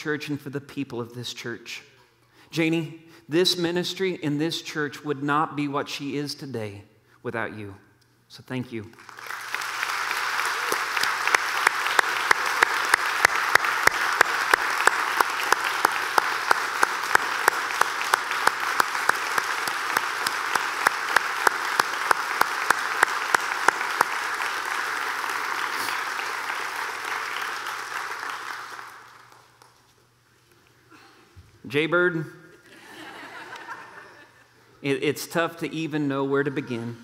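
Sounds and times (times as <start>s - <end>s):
large crowd applauding: 8.9s - 29.8s
sharp loud claps: 8.9s - 29.8s.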